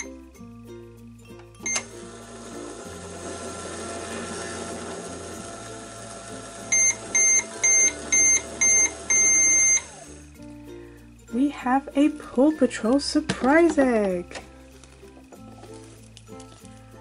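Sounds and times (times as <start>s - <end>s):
toy microwave beeps: 1.6s - 2.0s, 6.7s - 10.0s
toy microwave humming: 1.6s - 10.2s.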